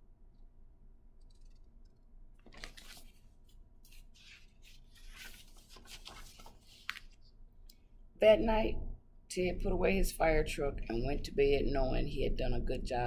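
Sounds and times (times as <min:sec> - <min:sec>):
low room hum: 0:00.0 - 0:13.0
paper book pages rustling: 0:02.4 - 0:07.3.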